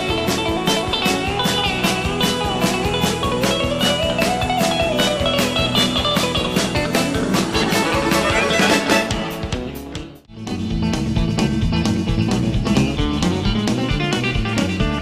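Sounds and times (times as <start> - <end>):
drum beat: 0.0 - 10.3
bass guitar: 0.0 - 15.0
twangy electric guitar: 0.0 - 15.0.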